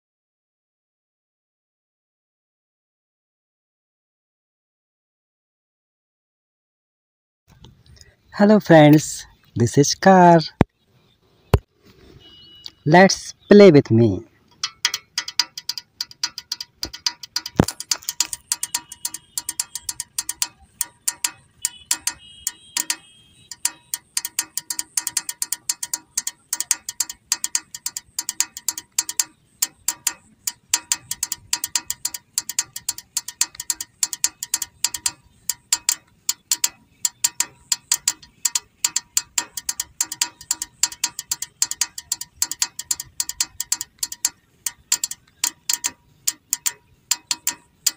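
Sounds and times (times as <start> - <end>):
toy car gears clicking: 14.5 - 47.9.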